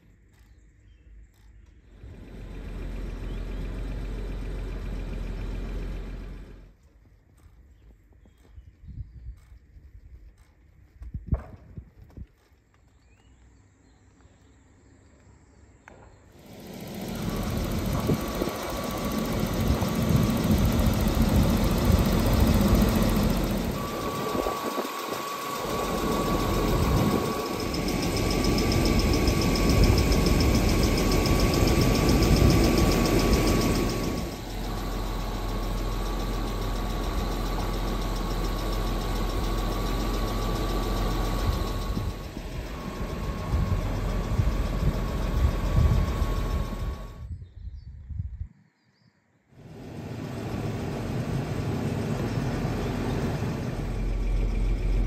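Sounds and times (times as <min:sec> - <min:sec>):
car engine idling: 0:01.9 - 0:06.8, 0:16.4 - 0:47.2, 0:49.7 - 0:55.0.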